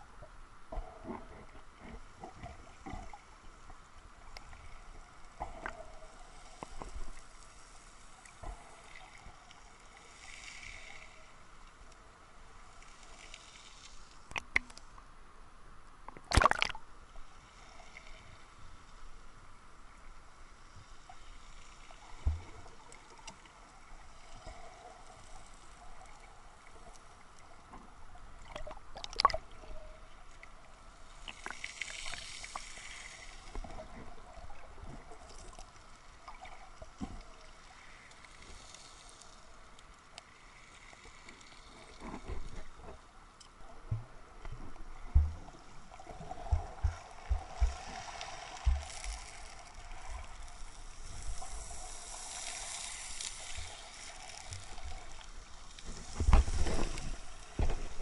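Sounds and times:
low thumps: 0:46.3 - 0:48.0, 0:48.6 - 0:49.2.

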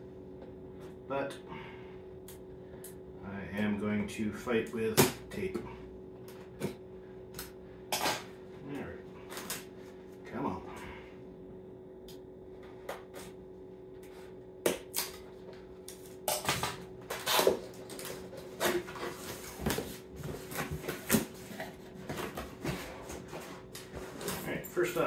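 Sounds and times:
faint steady hum: 0:00.0 - 0:25.0
packaging rustling and scraping: 0:17.0 - 0:25.0.

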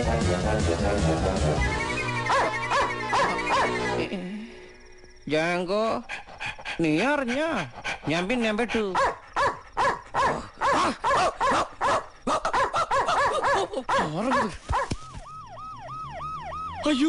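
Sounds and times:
siren yelping: 0:01.3 - 0:04.0, 0:12.5 - 0:17.0
large dog barking: 0:02.3 - 0:03.8, 0:08.8 - 0:14.9.

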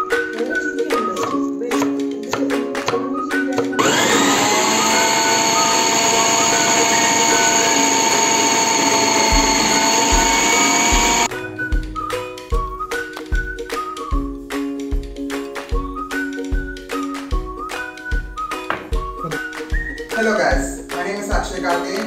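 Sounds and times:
background music with a beat: 0:00.0 - 0:04.6, 0:07.8 - 0:22.0
food processor motor whining: 0:03.8 - 0:11.3.

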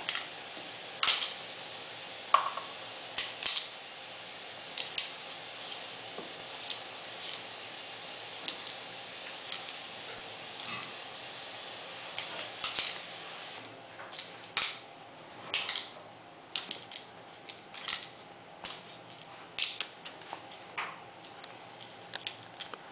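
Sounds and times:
dog claws clicking on tiled floor: 0:16.5 - 0:22.9.

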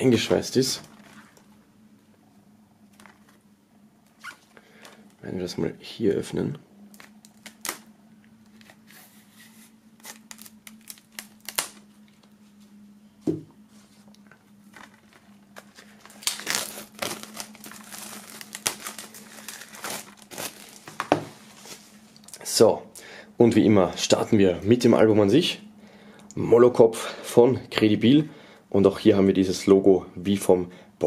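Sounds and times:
plastic shrink-wrap tearing: 0:06.9 - 0:07.9, 0:10.0 - 0:11.9, 0:15.6 - 0:21.1.

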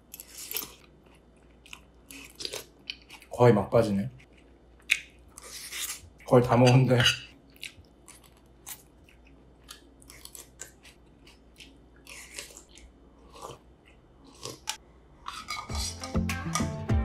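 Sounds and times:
person chewing with crunches: 0:00.0 - 0:03.5, 0:04.1 - 0:16.7.

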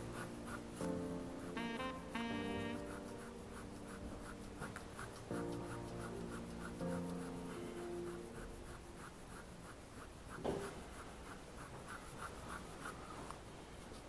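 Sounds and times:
faint musical notes: 0:00.0 - 0:09.6
pen scratching on paper: 0:00.0 - 0:13.4
louder tap or scrape: 0:10.4 - 0:10.8.

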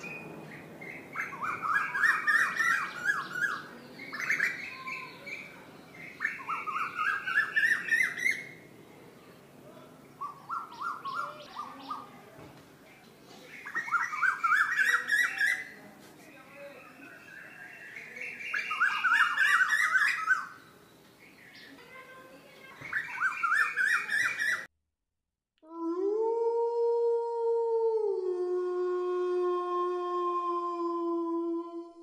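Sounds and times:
bird chattering calls: 0:00.0 - 0:08.6, 0:10.2 - 0:12.2, 0:13.5 - 0:15.8, 0:18.0 - 0:20.6, 0:22.6 - 0:24.7.

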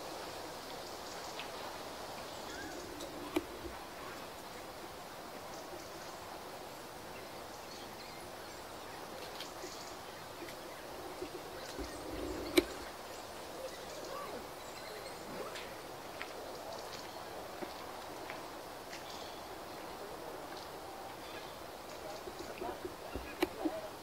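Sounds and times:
outdoor background noise: 0:00.0 - 0:24.0
sharp click: 0:11.8 - 0:12.8.

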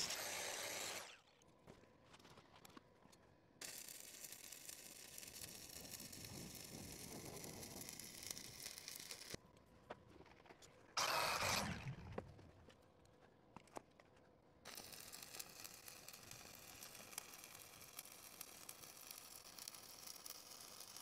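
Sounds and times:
welding arc crackling and hissing: 0:00.0 - 0:01.2, 0:03.6 - 0:09.4, 0:14.7 - 0:21.0.

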